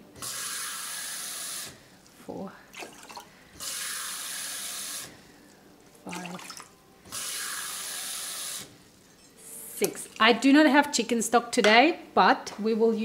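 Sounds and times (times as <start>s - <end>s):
kitchen tap running: 0.2s - 1.8s, 2.7s - 5.2s, 6.1s - 8.7s
water poured into pot: 2.7s - 8.6s.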